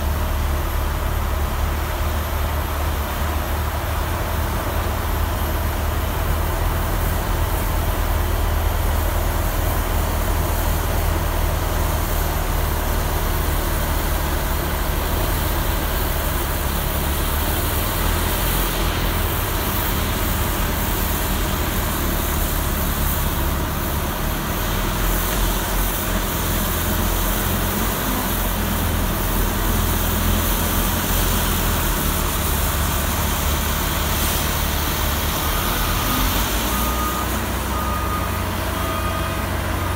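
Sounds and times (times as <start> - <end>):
deep diesel engine drone: 0.0 - 39.9
rushing hiss of snow: 12.0 - 37.6.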